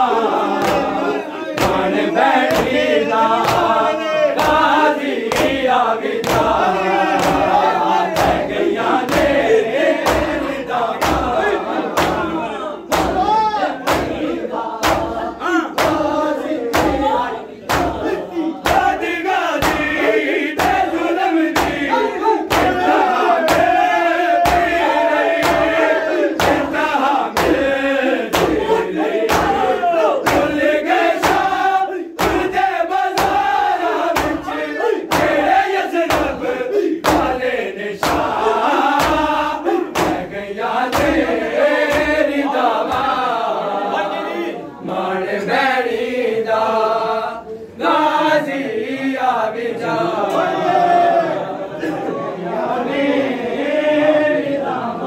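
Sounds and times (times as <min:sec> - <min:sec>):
men chanting together: 0:00.0 - 0:55.0
men slapping their chests: 0:00.5 - 0:43.3.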